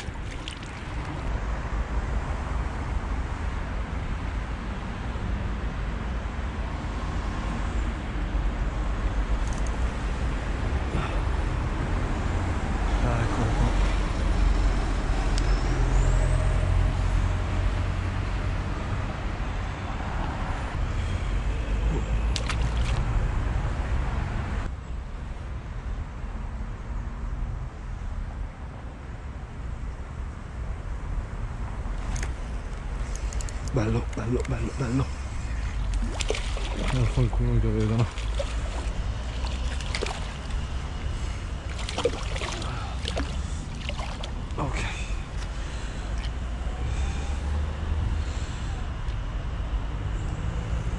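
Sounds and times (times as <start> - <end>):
fish splashing at water surface: 0.0 - 1.4, 22.3 - 23.0, 32.0 - 32.4, 34.4 - 44.6
road traffic rumbling: 0.0 - 24.8, 28.8 - 50.9
steady low rumble: 30.8 - 49.1.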